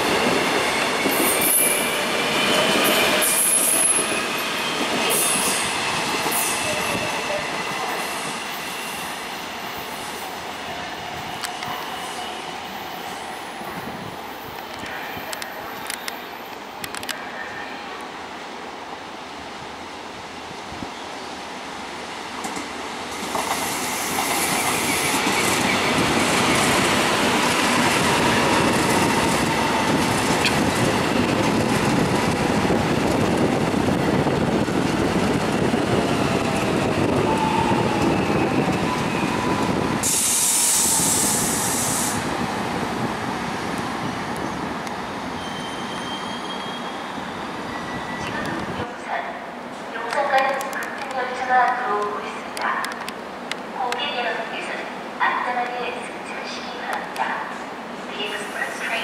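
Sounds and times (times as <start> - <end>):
train wheels on rails: 0.0 - 17.3, 20.5 - 54.6
short hiss burst: 40.0 - 42.3
faint wheel squeal: 45.4 - 48.4.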